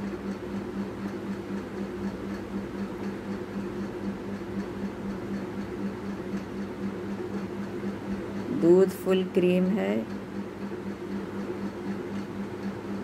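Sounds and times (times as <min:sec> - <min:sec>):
low pulsing hum: 0:05.1 - 0:13.0.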